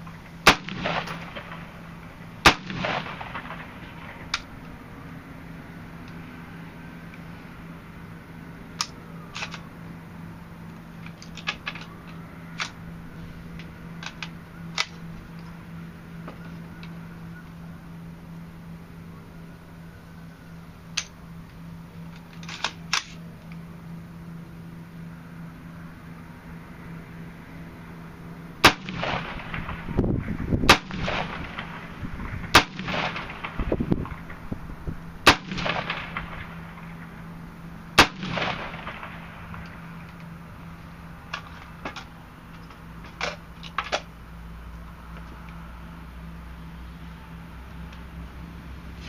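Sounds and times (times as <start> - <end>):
rifle shots with echo: 0.4 - 1.8, 2.4 - 4.5, 28.6 - 29.9, 30.7 - 34.4, 35.2 - 37.1, 38.0 - 39.6
rifle metallic clicks: 8.8 - 9.7, 13.5 - 15.6, 22.1 - 23.2.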